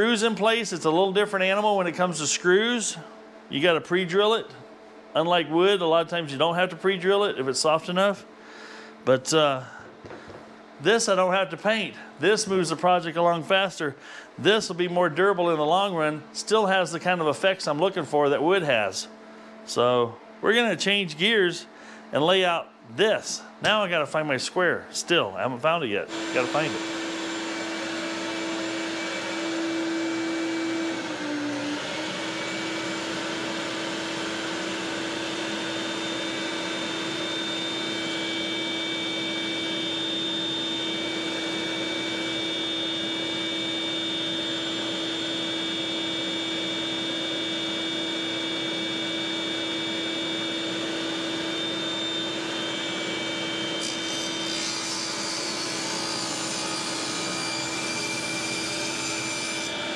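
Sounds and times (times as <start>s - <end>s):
electric motor drone: 26.1s - 59.9s.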